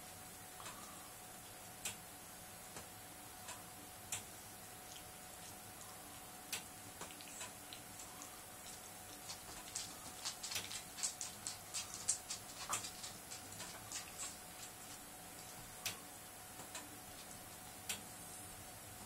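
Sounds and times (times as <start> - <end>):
dog licking wet smacking: 8.7 - 15.0.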